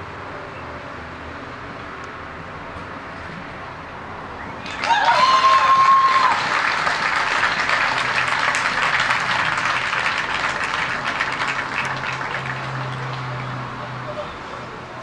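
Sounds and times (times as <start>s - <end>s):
spectators clapping: 4.6s - 13.8s.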